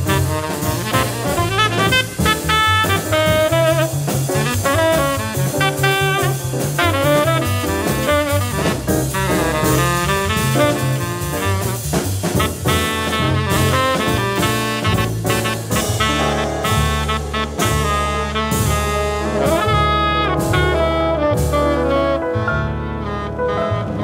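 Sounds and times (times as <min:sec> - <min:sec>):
drum kit cymbals swinging: 0:00.0 - 0:21.8
tenor saxophone playing bebop: 0:00.0 - 0:24.0
upright bass walking: 0:00.0 - 0:24.0.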